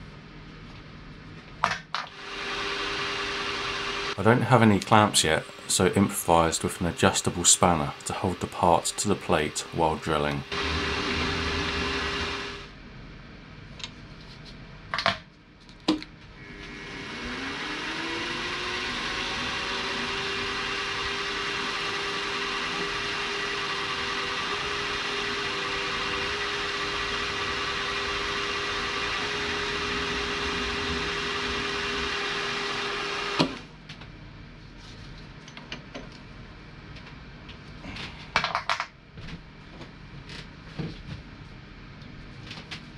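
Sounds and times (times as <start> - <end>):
drilling machine motor whining: 2.1 - 4.4, 6.8 - 12.8, 16.4 - 33.6
drill bit boring metal: 2.2 - 4.2, 7.6 - 12.7, 16.4 - 33.6.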